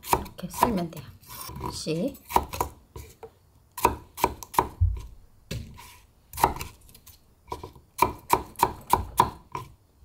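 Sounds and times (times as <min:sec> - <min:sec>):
knife chopping on cutting board: 0:00.0 - 0:03.2, 0:03.8 - 0:06.8, 0:07.5 - 0:09.7.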